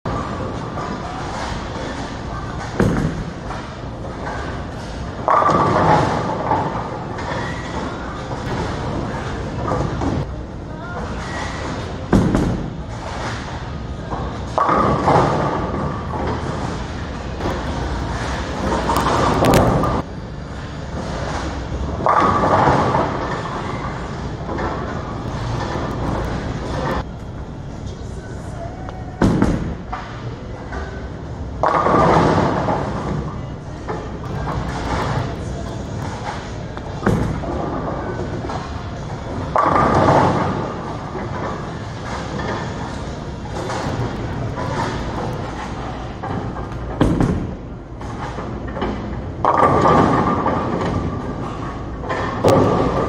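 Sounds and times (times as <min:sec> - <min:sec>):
bowling ball rolling: 0:00.1 - 0:10.3, 0:11.0 - 0:27.1, 0:29.2 - 0:53.0
bowling pins clattering: 0:00.1 - 0:10.3, 0:11.1 - 0:20.1, 0:20.8 - 0:27.1, 0:31.0 - 0:53.0.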